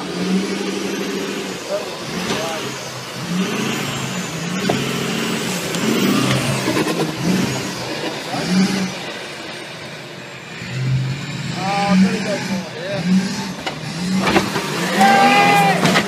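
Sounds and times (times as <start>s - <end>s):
truck engine revving hard: 0.0s - 16.0s.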